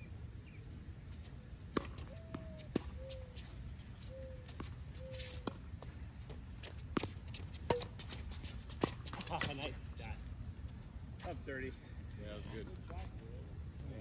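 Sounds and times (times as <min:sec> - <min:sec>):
tennis ball struck by rackets: 0:01.7 - 0:03.0, 0:06.9 - 0:09.5
ball bouncing on hard court: 0:01.7 - 0:03.1.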